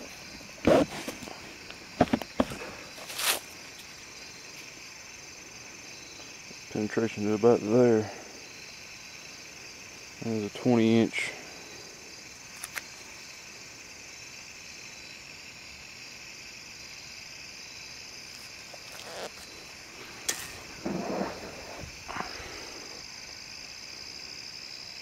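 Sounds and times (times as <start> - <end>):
rustling scrape: 0.0 - 4.0, 18.4 - 23.0
insect chorus: 0.0 - 25.0.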